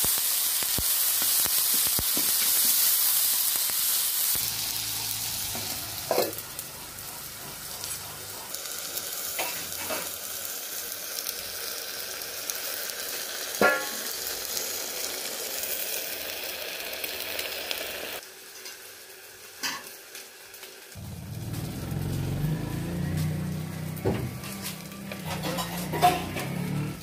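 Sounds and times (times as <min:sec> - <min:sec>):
food sizzling in a pan: 0:00.0 - 0:27.0
low steady rumble: 0:21.0 - 0:24.0.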